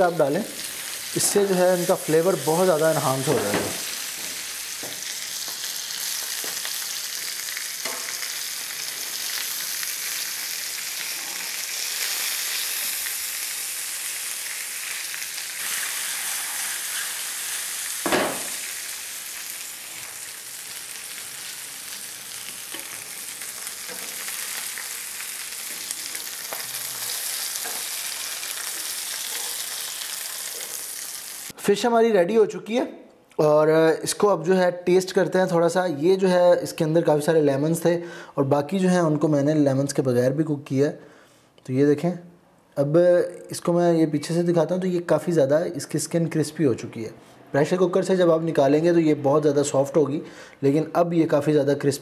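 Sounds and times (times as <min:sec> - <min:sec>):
fish sizzling in a pan: 0:00.0 - 0:31.6.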